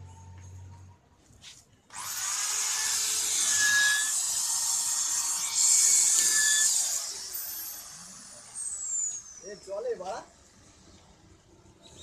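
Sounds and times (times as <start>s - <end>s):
power saw cutting plastic: 1.9s - 9.4s.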